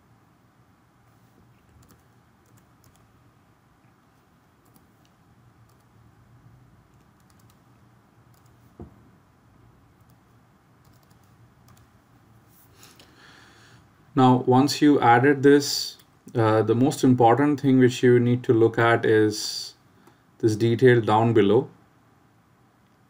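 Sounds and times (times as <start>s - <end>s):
computer keyboard typing: 1.7s - 3.1s, 4.6s - 5.9s, 6.9s - 7.7s, 8.3s - 8.6s, 10.0s - 11.9s.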